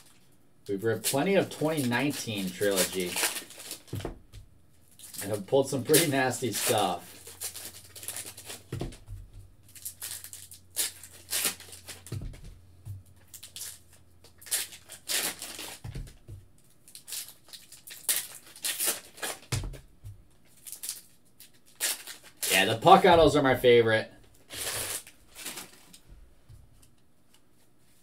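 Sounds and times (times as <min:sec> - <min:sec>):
cards rustling: 0:00.0 - 0:04.1, 0:04.9 - 0:19.8, 0:20.5 - 0:23.6, 0:24.4 - 0:26.0
foil pack tearing and crinkling: 0:00.8 - 0:04.1, 0:04.9 - 0:08.8, 0:09.6 - 0:12.3, 0:13.2 - 0:16.2, 0:16.8 - 0:19.8, 0:20.5 - 0:23.1, 0:24.4 - 0:26.0
cards thumping on table: 0:03.8 - 0:04.5, 0:08.0 - 0:09.5, 0:11.9 - 0:13.0, 0:15.6 - 0:16.5, 0:19.5 - 0:20.2.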